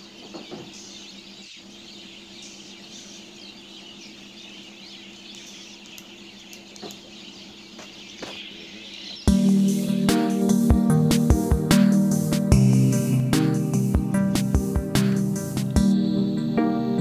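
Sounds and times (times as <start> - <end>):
birds chirping: 0.0 - 17.0
loud music: 9.3 - 17.0.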